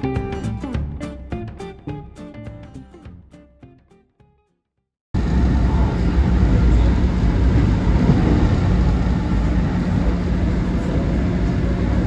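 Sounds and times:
subway train rumbling: 5.2s - 12.0s.

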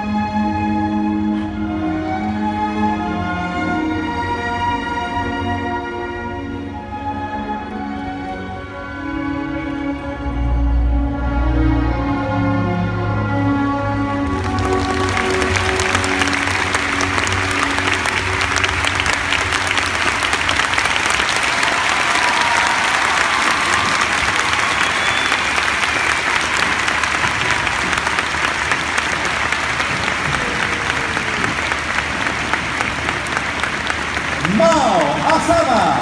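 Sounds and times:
arena crowd applauding: 14.2s - 36.0s.

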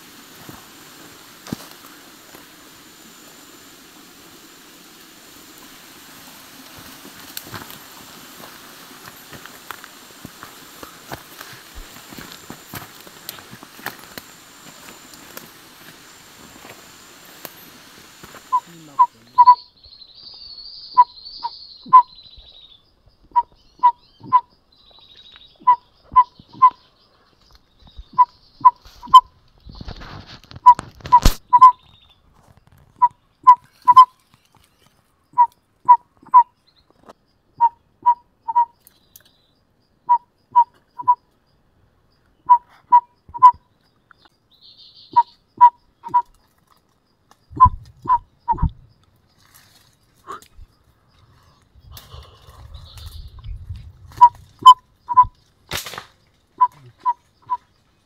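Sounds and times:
rustle: 0.0s - 22.8s, 23.4s - 37.3s, 42.1s - 58.0s
loud whistled call: 18.5s - 19.7s, 20.9s - 22.2s, 25.6s - 26.8s, 30.6s - 31.8s, 33.0s - 34.1s, 35.4s - 36.5s, 37.6s - 38.7s, 40.1s - 41.2s, 42.5s - 43.6s, 45.1s - 46.3s, 47.6s - 48.7s, 54.2s - 55.4s, 56.6s - 57.6s.

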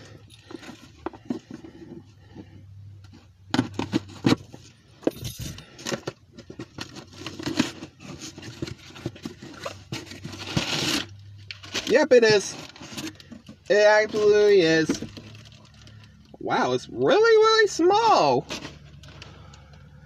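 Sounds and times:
packaging rustling and crinkling: 5.6s - 16.2s.

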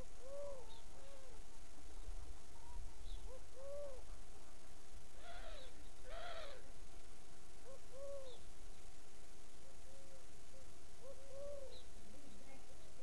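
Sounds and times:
dove cooing: 0.0s - 1.4s, 2.6s - 4.2s, 5.2s - 6.6s, 7.6s - 8.4s, 9.8s - 11.8s.

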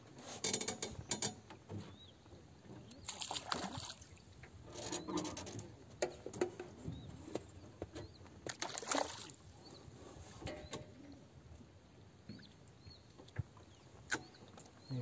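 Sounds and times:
water splashing and trickling: 3.0s - 5.6s, 8.4s - 9.6s.

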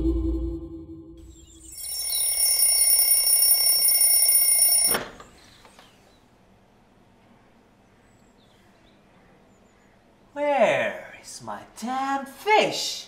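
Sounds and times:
high-pitched alarm ringing: 1.3s - 5.0s.

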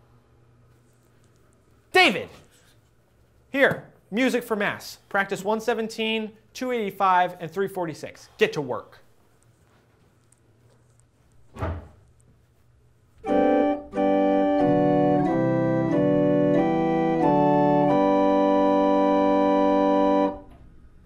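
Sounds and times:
short thump: 11.5s - 12.1s
pipe organ playing hymn: 13.2s - 20.5s.

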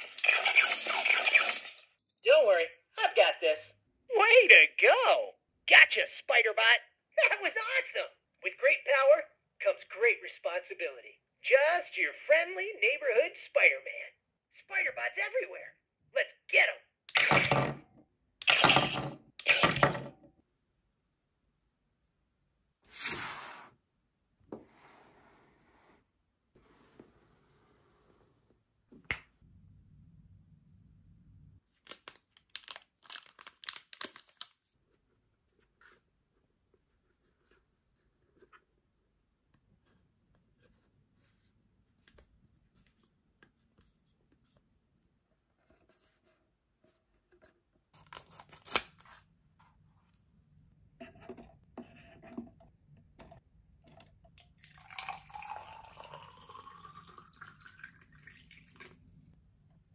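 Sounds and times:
water poured into plastic cylinder: 0.0s - 1.9s, 54.3s - 59.3s.

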